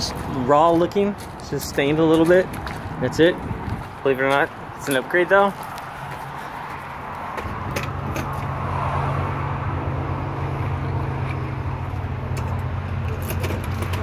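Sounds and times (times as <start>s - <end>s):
low engine hum: 5.6s - 14.0s.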